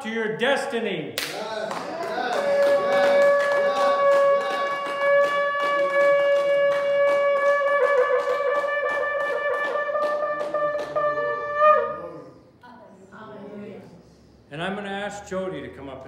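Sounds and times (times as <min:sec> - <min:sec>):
ram's horn long note: 0:02.4 - 0:12.3.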